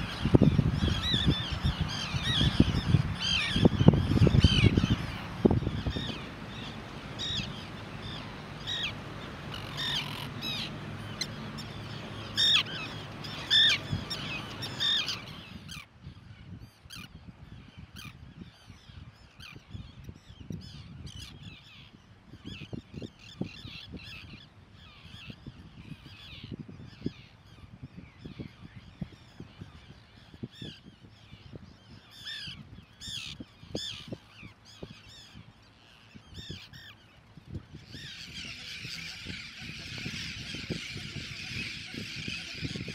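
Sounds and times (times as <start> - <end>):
low steady rumble: 0.0 - 15.7
terns calling: 0.0 - 15.9, 32.0 - 42.9.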